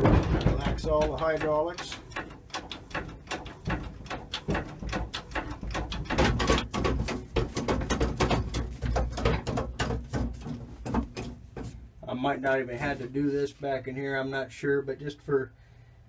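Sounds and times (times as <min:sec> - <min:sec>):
backhoe levers clicking and clunking: 0:00.0 - 0:11.8.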